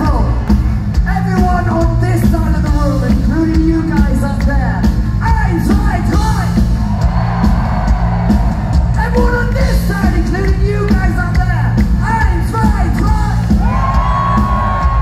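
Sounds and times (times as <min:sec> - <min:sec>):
live rock band playing: 0:00.0 - 0:15.0
people yelling: 0:13.6 - 0:15.0.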